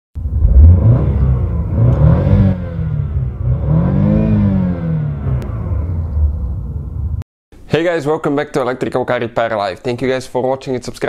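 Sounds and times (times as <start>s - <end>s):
car engine revving: 0.2s - 7.2s
exhaust low rumble: 0.2s - 7.2s.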